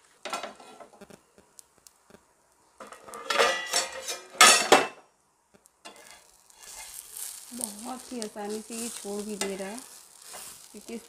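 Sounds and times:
faint batter sizzling: 0.0 - 11.0
metal cookware clattering on iron griddle: 2.8 - 5.0, 5.9 - 7.0.

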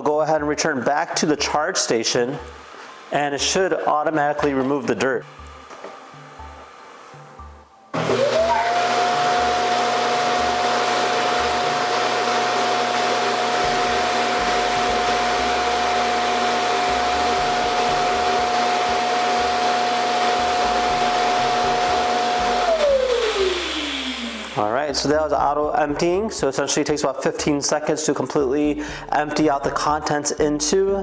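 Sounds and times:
vacuum suction motor rushing: 8.0 - 25.0.

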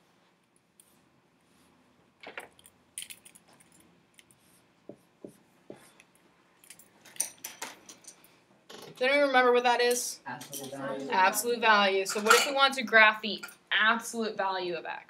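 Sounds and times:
marker and eraser on whiteboard: 4.2 - 6.1.

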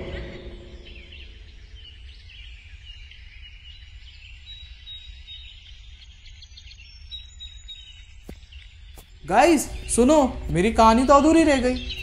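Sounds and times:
steady low rumble: 0.0 - 2.5
birds chirping: 0.0 - 12.0.

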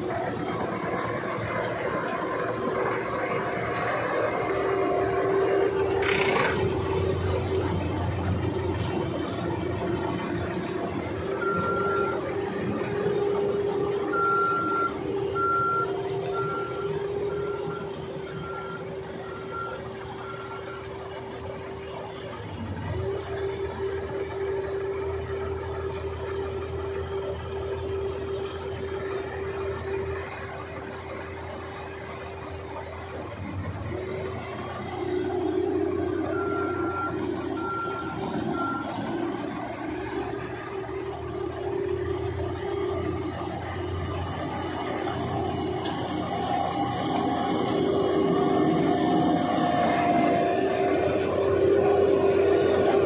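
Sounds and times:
constant whine: 0.0 - 53.0
tractor diesel engine running: 0.0 - 53.0.

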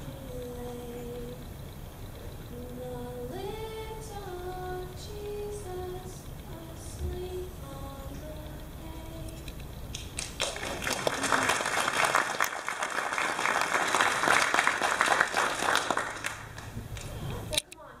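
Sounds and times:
person singing carol: 0.0 - 1.8, 2.4 - 9.6
audience applause: 10.2 - 17.2.

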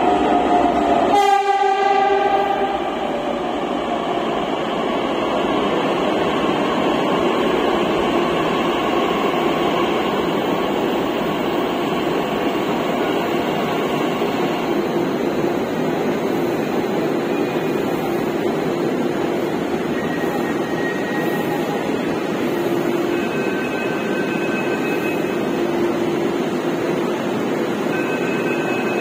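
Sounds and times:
train rushing noise: 0.0 - 29.0.

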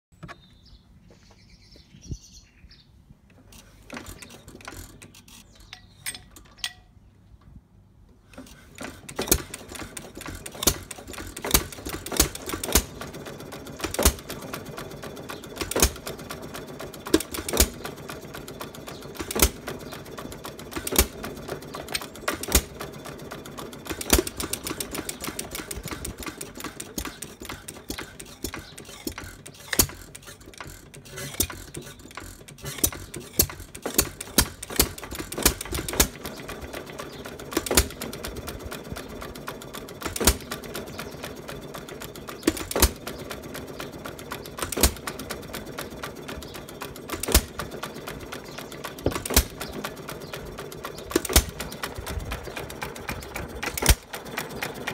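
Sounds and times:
stationary engine running: 8.4 - 54.9
scattered clicks: 23.9 - 38.4, 50.8 - 54.9.

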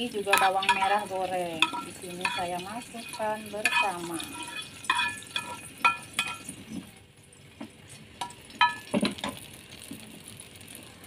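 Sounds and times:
metal spoon clinking on pan: 0.0 - 6.6, 8.2 - 9.4
spoon scraping pan: 0.0 - 6.9.

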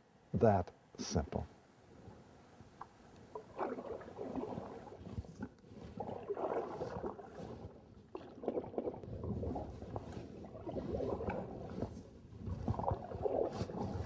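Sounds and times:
canoe paddle splashing in water: 3.2 - 14.0.

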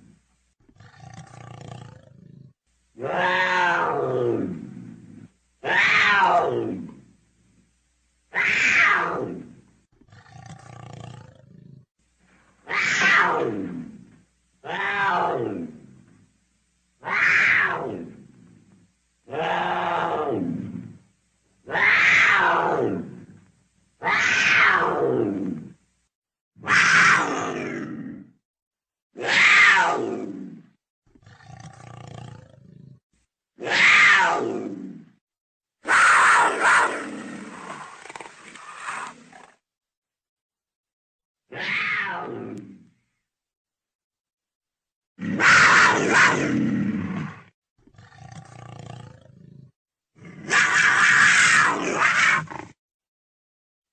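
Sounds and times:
wild cat yowling: 3.0 - 4.6, 5.6 - 7.0, 8.3 - 9.5, 12.6 - 14.0, 14.6 - 15.8, 17.0 - 18.3, 19.3 - 21.0, 21.6 - 23.3, 24.0 - 25.7, 26.6 - 28.3, 29.2 - 30.6, 33.6 - 35.0, 35.8 - 39.6, 41.5 - 42.9, 45.2 - 47.5, 50.2 - 52.8
quieter lower animal sound: 8.3 - 26.0, 35.8 - 39.6.

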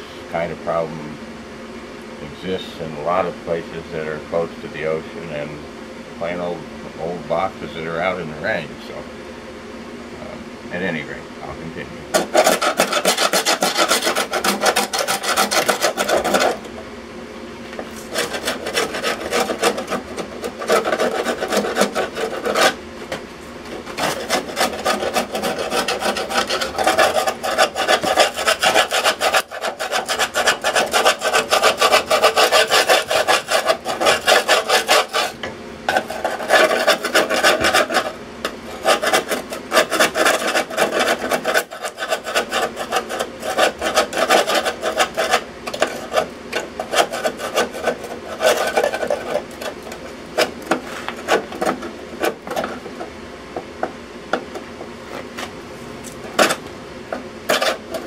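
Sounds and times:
hand scraper rasping on rusted steel: 12.1 - 16.7, 17.9 - 22.8, 23.7 - 53.1, 57.4 - 58.0.

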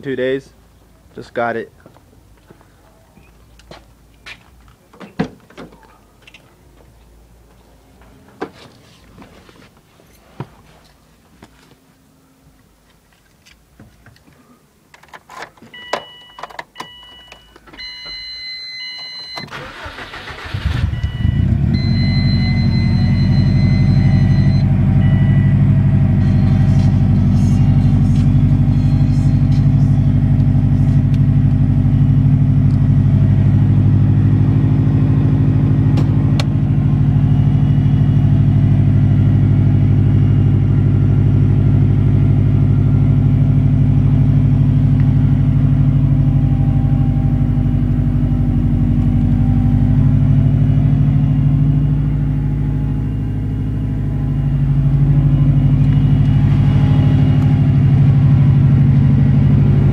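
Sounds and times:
car engine idling: 19.5 - 59.9
high beeping chimes: 20.8 - 26.9.

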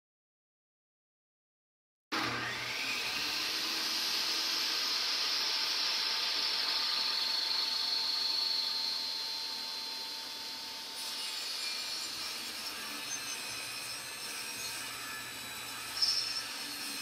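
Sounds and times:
table saw ripping wood: 2.1 - 8.9, 10.2 - 17.0.

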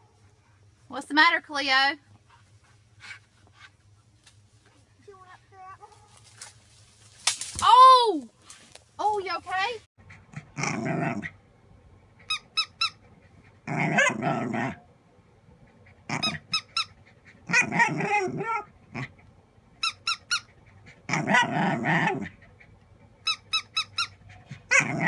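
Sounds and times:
dog barking: 5.8 - 6.2
squeaky plush toy squeaking: 12.2 - 13.0, 16.1 - 17.0, 19.8 - 20.5, 23.2 - 24.2.

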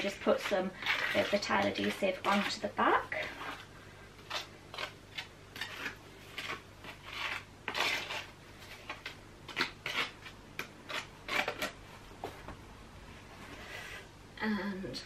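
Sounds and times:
trowel scraping adhesive: 0.0 - 11.8.

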